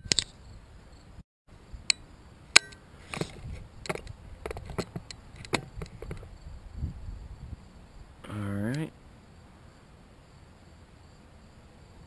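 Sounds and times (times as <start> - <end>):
crossbow clicks and knocks: 0.0 - 0.4.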